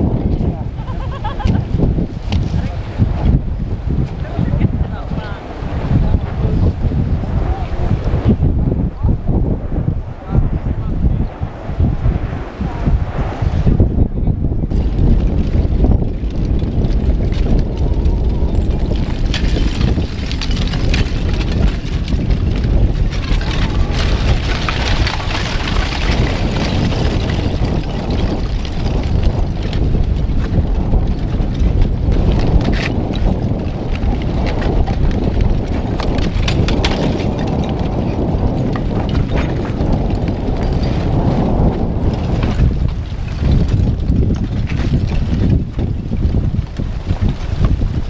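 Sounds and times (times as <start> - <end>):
lava crust cracking: 0.0 - 13.8, 14.5 - 48.0
wind rumble on microphone: 0.0 - 48.0
rock chunks clinking and tumbling: 14.7 - 48.0.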